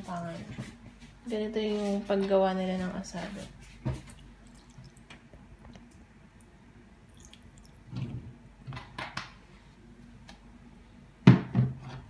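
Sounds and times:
wet dripping and squishing: 3.8s - 7.9s
sauce pouring onto chicken: 7.1s - 7.8s.

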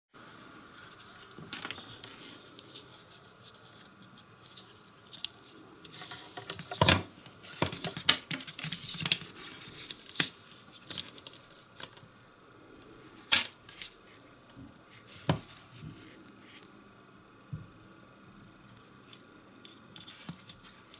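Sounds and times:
cord rustling across paper: 0.6s - 12.1s, 18.8s - 20.9s.

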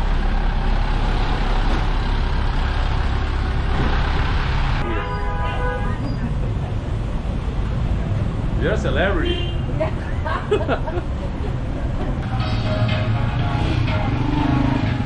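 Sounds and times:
street traffic engine rumble: 0.0s - 15.0s
vehicle horn: 4.8s - 6.0s.

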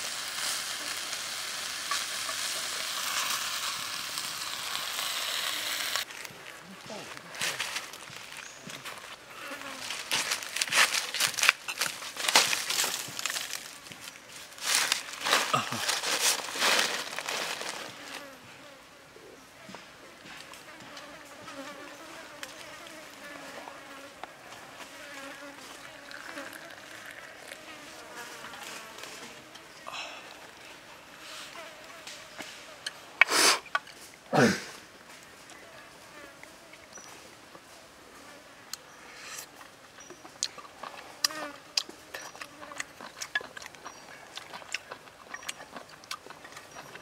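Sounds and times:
flying insect buzzing: 0.0s - 6.1s, 20.6s - 29.9s
water pouring into a cup: 25.9s - 27.6s
wet chewing clicks and smacks: 39.6s - 47.0s.

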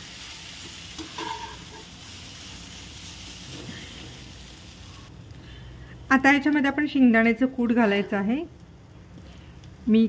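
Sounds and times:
food sizzling in oil: 0.0s - 5.1s
steel spatula scraping a pan: 1.0s - 1.9s.

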